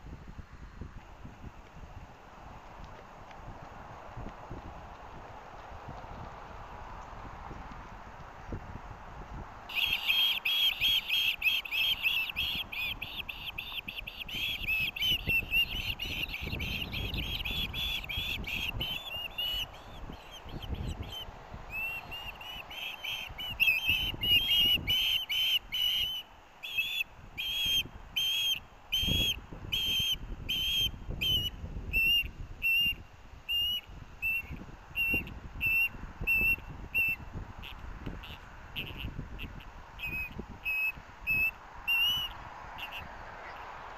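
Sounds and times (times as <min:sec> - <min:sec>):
wind rumble on microphone: 0:00.0 - 0:43.9
ospreys chirping: 0:09.7 - 0:43.6.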